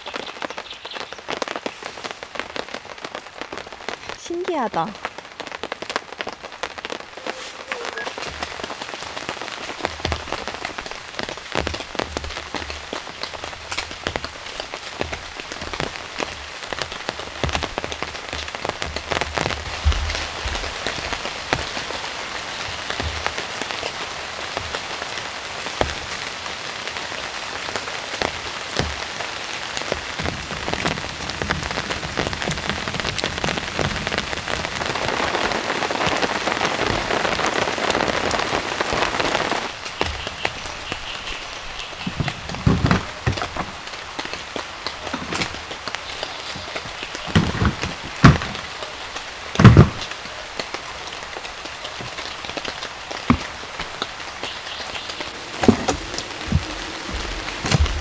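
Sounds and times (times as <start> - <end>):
rain falling in a forest: 0.0 - 58.0
raindrops ticking close by: 0.0 - 58.0
low thuds of drops: 55.2 - 58.0.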